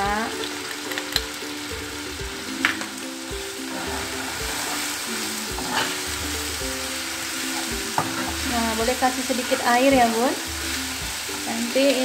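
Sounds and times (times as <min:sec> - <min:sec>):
soft background music: 0:00.0 - 0:12.0
vegetables sizzling in hot oil: 0:00.0 - 0:12.0
spatula scraping a pan: 0:03.7 - 0:11.4.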